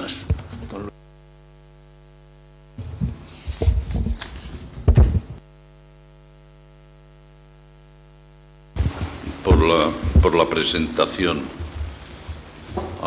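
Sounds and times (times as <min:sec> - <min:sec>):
electrical mains hum: 0:00.0 - 0:13.0
microphone handling knocks: 0:02.8 - 0:05.4, 0:08.8 - 0:10.5, 0:11.5 - 0:13.0.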